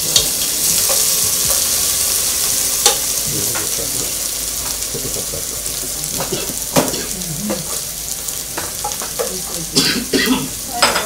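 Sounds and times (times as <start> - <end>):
onions sizzling in hot oil: 0.0 - 11.0
spoon scraping and knocking pan: 0.1 - 1.8, 6.2 - 9.5.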